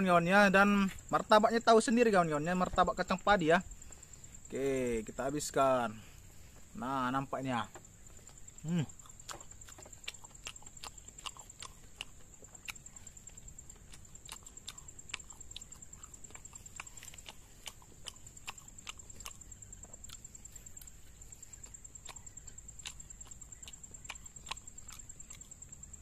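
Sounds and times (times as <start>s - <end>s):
person chewing crunchy food: 7.6s - 26.0s.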